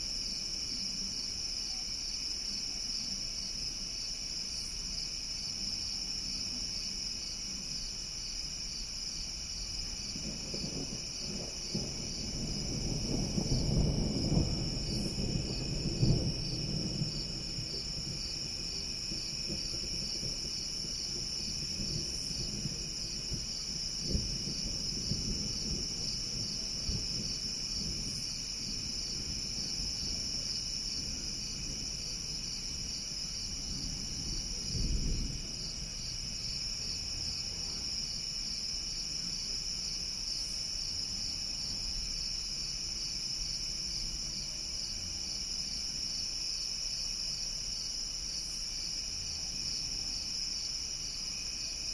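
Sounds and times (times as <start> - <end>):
night insects chirring: 0.0 - 51.9
low thunder rumble: 9.4 - 46.3.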